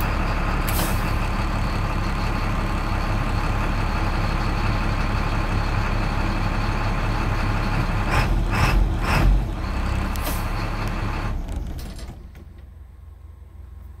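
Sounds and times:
bus diesel engine running: 0:00.0 - 0:14.0
short air hisses: 0:00.7 - 0:01.1.

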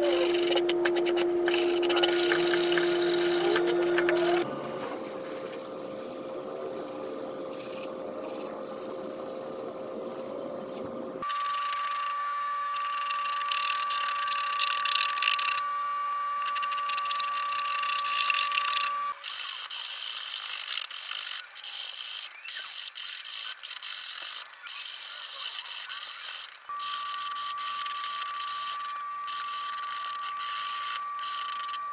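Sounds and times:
steady high tone: 0:00.0 - 0:10.0, 0:26.7 - 0:31.9
rasp scraping wood: 0:00.0 - 0:10.3.

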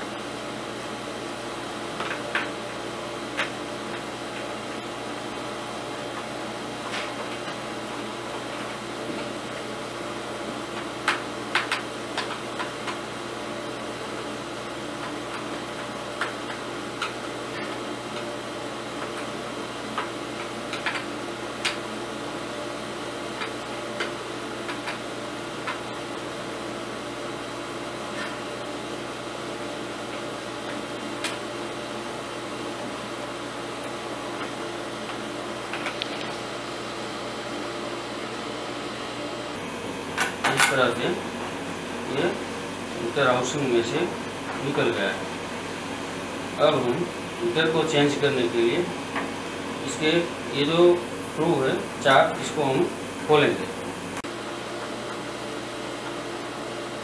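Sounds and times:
background hiss and hum: 0:00.0 - 0:57.0.

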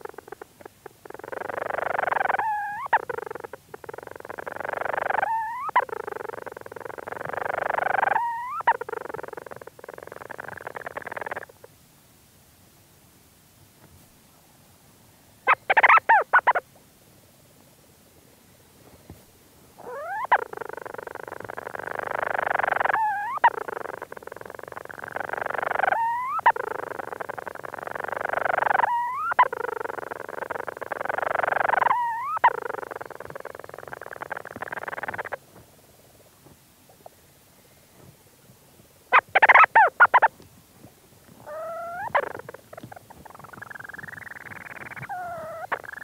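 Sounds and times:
bird purring churr: 0:00.0 - 0:11.7, 0:15.5 - 0:16.6, 0:19.8 - 0:37.2, 0:39.1 - 0:40.4, 0:41.3 - 0:46.0
bird rapid chatter: 0:41.5 - 0:46.0.

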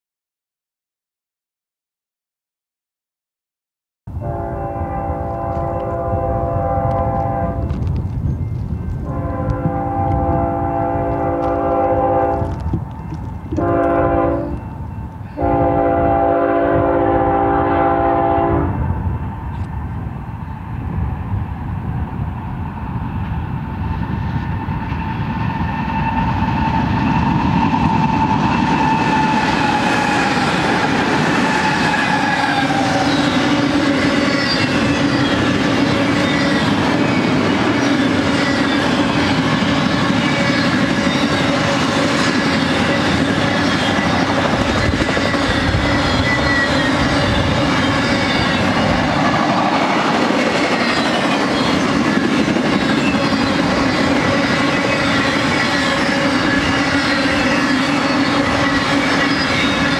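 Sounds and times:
diesel locomotives: 0:04.1 - 0:59.9
train wheels clattering on rails: 0:06.8 - 0:15.8, 0:22.7 - 0:59.9.

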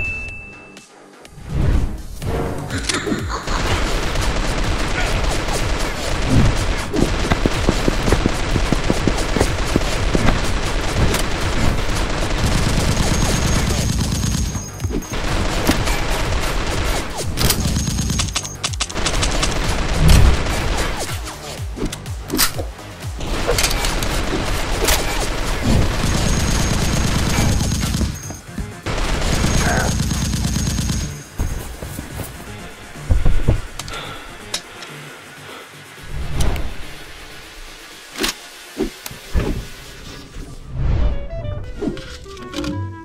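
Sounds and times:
rapid gunfire-like shots: 0:03.4 - 0:31.4.

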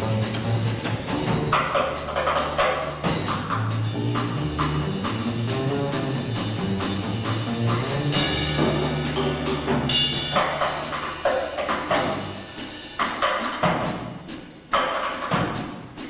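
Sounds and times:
upright double bass: 0:00.0 - 0:12.6
drum kit and cymbals: 0:00.0 - 0:16.0.

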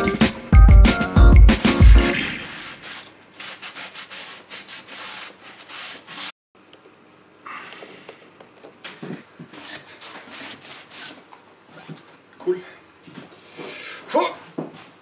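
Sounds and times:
cloth rubbing on wood: 0:02.5 - 0:06.3.

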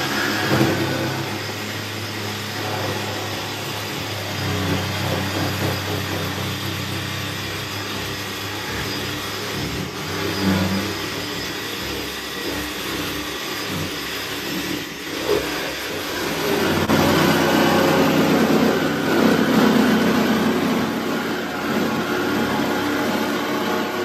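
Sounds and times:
power tool cutting sheet metal: 0:00.0 - 0:24.0.

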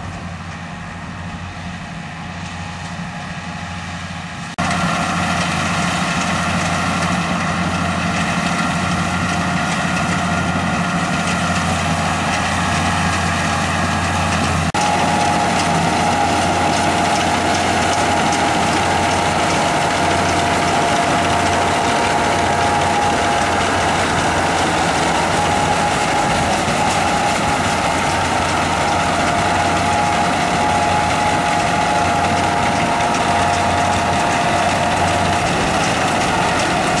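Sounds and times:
combine harvester low hum: 0:00.0 - 0:37.0
steady high whine: 0:10.2 - 0:37.0.

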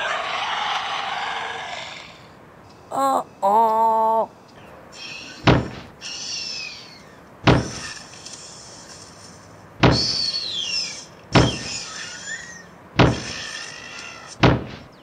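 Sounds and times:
birds whistling: 0:04.5 - 0:08.0, 0:09.8 - 0:15.0
heavy dinosaur footstep thuds: 0:05.5 - 0:05.9, 0:07.4 - 0:07.8, 0:09.8 - 0:10.2, 0:13.0 - 0:13.3, 0:14.4 - 0:14.9.

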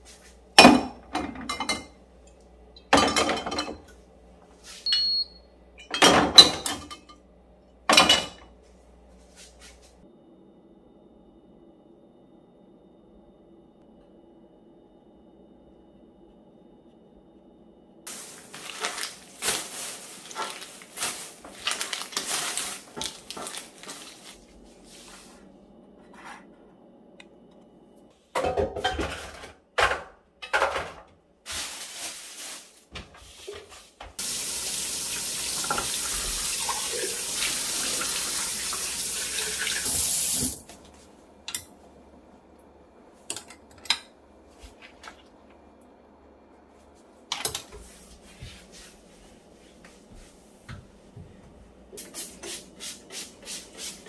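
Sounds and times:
plastic bag crinkling: 0:18.1 - 0:24.6, 0:31.5 - 0:32.9.

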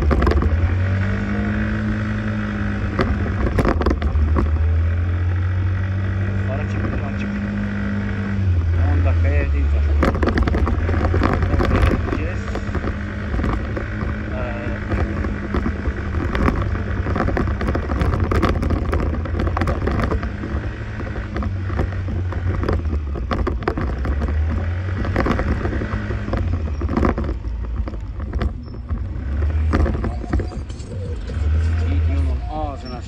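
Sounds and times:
small knocks: 0:00.0 - 0:01.0, 0:02.8 - 0:04.8, 0:09.8 - 0:30.8
wind rumble on microphone: 0:00.0 - 0:04.9, 0:09.3 - 0:33.0
scooter engine running: 0:00.0 - 0:33.0.

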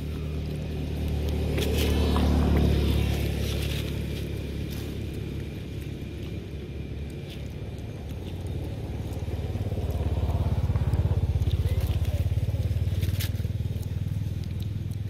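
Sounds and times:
vehicle engine pulsing hum: 0:00.0 - 0:15.0
light crackling clicks: 0:12.9 - 0:15.0.

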